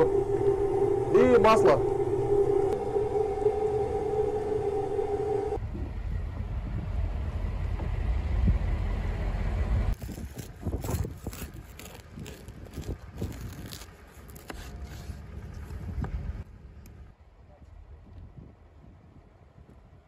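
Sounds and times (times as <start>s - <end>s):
steady low rumble: 0.0s - 14.4s
knife sawing through crusty bread: 10.0s - 15.2s.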